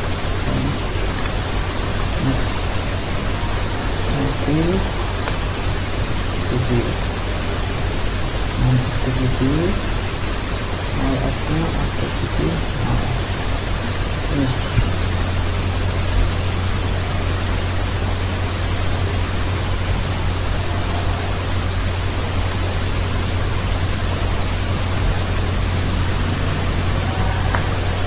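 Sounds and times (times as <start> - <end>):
microphone hiss and low hum: 0.0 - 28.0.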